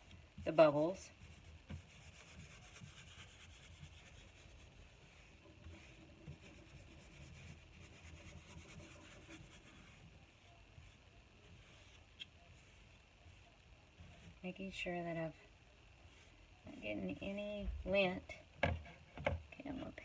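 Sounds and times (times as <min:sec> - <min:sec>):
brush bristles rubbing: 0:00.7 - 0:14.5.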